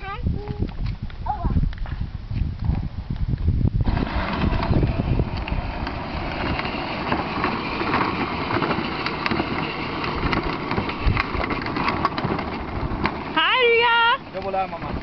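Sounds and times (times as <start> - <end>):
electric ride-on toy car driving: 3.8 - 15.0.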